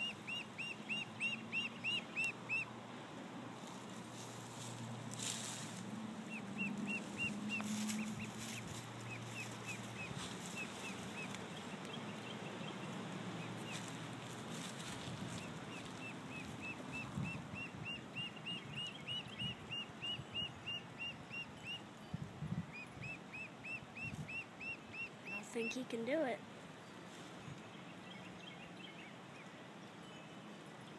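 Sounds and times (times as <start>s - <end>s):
duckling peeping: 0.0s - 2.7s, 6.2s - 14.0s, 14.6s - 21.8s, 22.7s - 26.3s.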